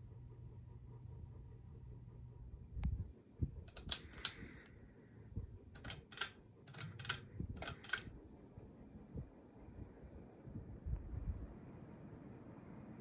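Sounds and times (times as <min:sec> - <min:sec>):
fan motor hum: 0:00.0 - 0:13.0
pull chain switch clicks: 0:03.7 - 0:04.7, 0:05.8 - 0:08.1.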